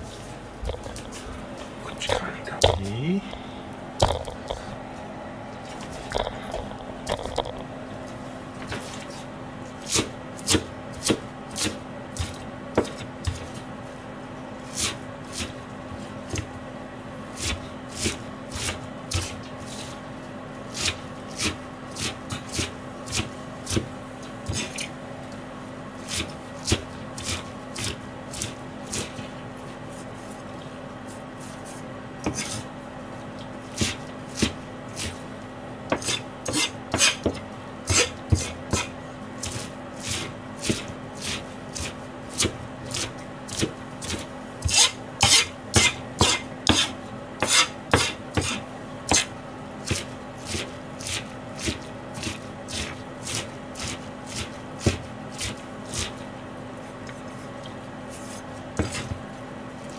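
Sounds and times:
steady low hum: 0.0 - 59.9
knife chopping on cutting board: 9.8 - 13.6, 20.7 - 24.9, 31.6 - 32.7, 33.7 - 35.2, 35.9 - 56.2, 58.2 - 59.2.

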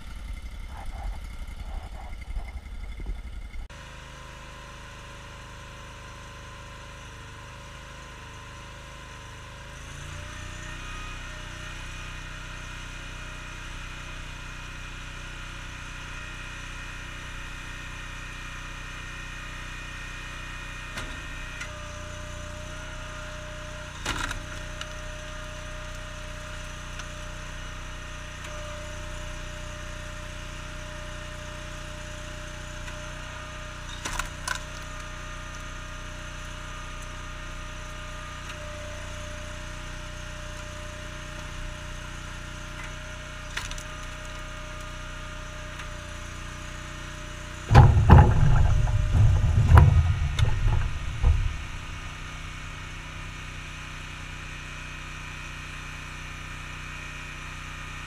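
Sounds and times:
engine running steadily: 0.0 - 58.0
logs cracking as they split: 47.7 - 52.2
low thumps and rumble: 47.7 - 52.3.

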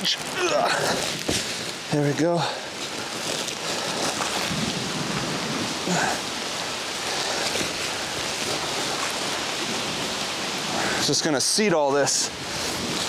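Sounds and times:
steady rain falling: 0.0 - 13.0.

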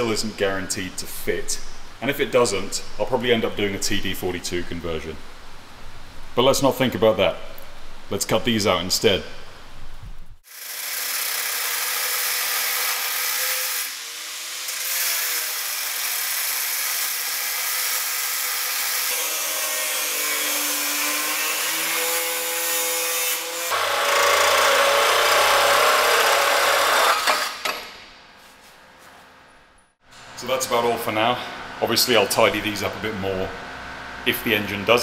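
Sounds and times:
loud power tool: 10.4 - 27.9
angle grinder cutting steel: 10.5 - 27.9.

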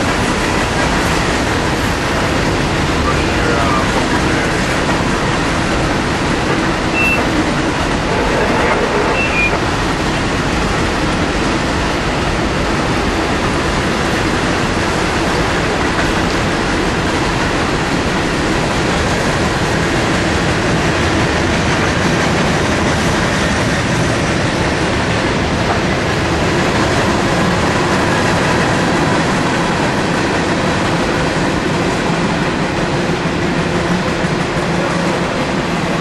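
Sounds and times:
steel wheels on rail: 0.0 - 36.0.

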